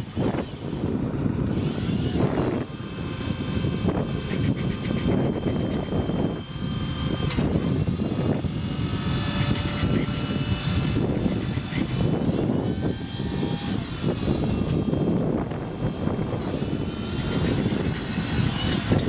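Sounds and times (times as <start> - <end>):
engine running steadily: 0.0 - 19.0
wind rumble on microphone: 0.0 - 19.0.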